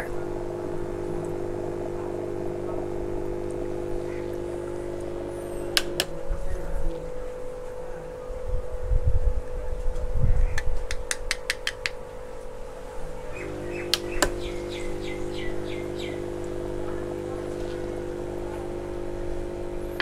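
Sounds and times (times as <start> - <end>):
air pump humming: 0.0 - 20.0
bird chirping: 13.3 - 16.3.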